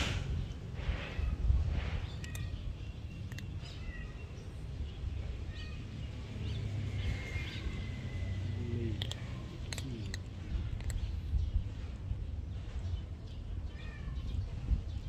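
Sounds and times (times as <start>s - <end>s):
sharp clicks: 8.9s - 11.0s.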